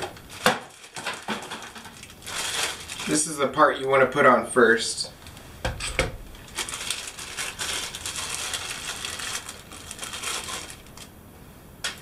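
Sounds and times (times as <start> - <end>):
plastic bag crinkling: 0.0 - 4.0, 6.2 - 11.2.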